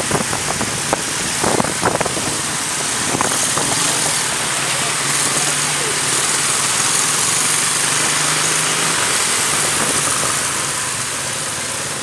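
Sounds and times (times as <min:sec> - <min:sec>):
wind noise on microphone: 0:00.0 - 0:04.4, 0:09.5 - 0:10.6
scooter engines running: 0:00.0 - 0:12.0.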